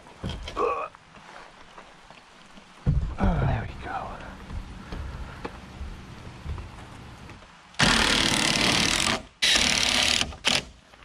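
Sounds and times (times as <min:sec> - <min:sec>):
impact driver driving a screw: 0:07.8 - 0:10.7.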